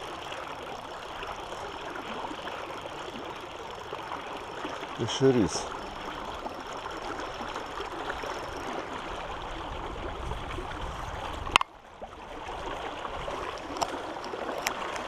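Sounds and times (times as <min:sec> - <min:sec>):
river water flowing: 0:00.0 - 0:15.0.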